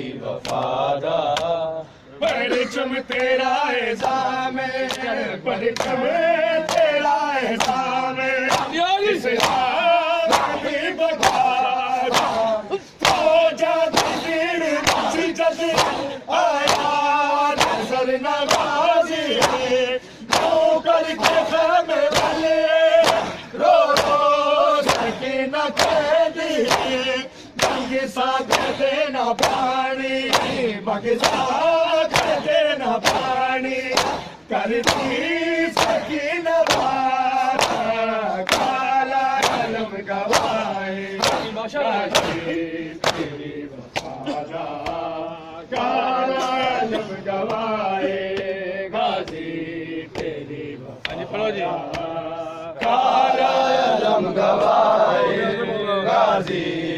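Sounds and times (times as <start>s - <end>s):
men chanting in chorus: 0.0s - 56.9s
hands slapping bare chests: 5.8s - 6.0s, 6.6s - 6.9s, 7.5s - 8.8s, 9.4s - 10.6s, 11.2s - 18.8s, 19.4s - 20.6s, 21.2s - 22.4s, 23.0s - 44.2s, 51.8s - 52.1s.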